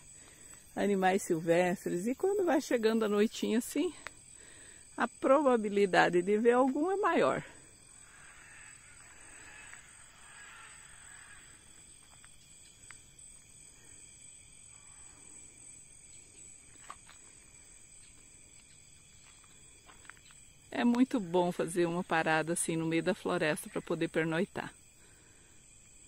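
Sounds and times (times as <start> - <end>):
insects droning: 0.0 - 26.0
faint ticks: 3.9 - 4.2, 11.2 - 13.0.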